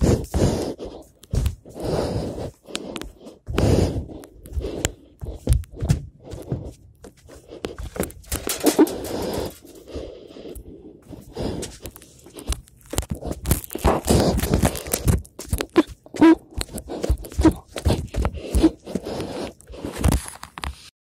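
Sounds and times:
rustling and scraping: 4.6 - 10.0, 11.1 - 20.9.

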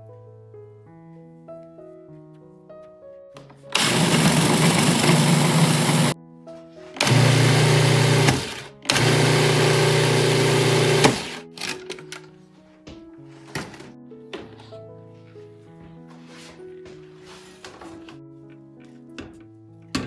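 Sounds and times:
food processor blade whirring: 3.8 - 6.2, 7.0 - 11.4.

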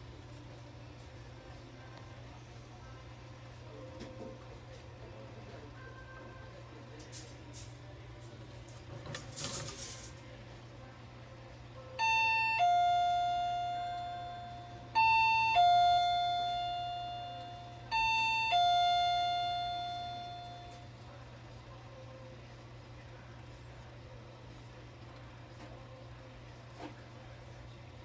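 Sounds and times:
two-note electronic chime: 12.0 - 20.9.

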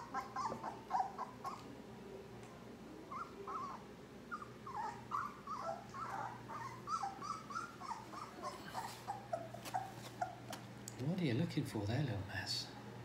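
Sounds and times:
puppy whimpering: 0.0 - 1.7, 3.1 - 10.6.

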